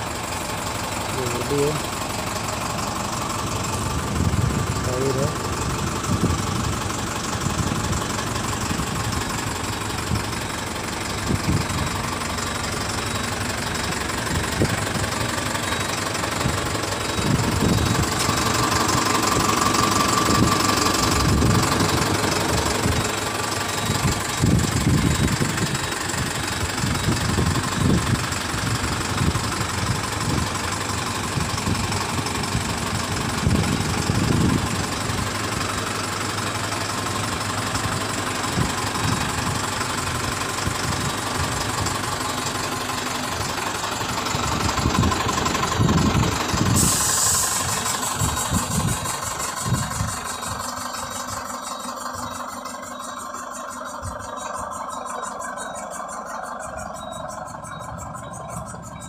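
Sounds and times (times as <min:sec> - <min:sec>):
engine idling: 0:00.0 - 0:59.0
low rumbles: 0:00.0 - 0:59.0.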